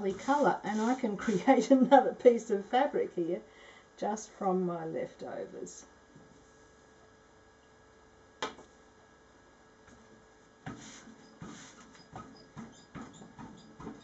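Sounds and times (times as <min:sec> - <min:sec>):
wet fabric scuffing on plastic: 0:00.0 - 0:01.6.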